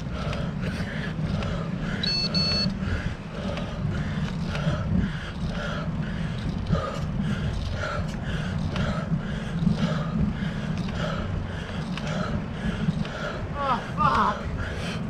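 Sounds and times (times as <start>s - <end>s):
cyclist breathing hard: 0.0s - 15.0s
tyres and wind rumble: 0.0s - 15.0s.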